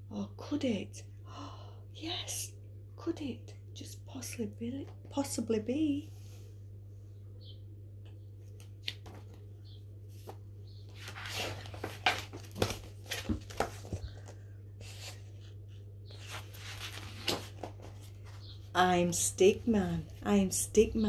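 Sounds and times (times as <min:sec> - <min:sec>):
paper rustling: 0:10.1 - 0:18.4.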